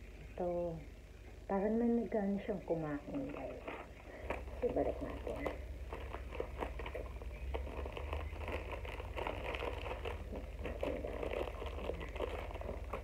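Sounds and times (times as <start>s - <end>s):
low steady hum: 0.0s - 13.0s
plastic packaging crinkling: 3.0s - 13.0s.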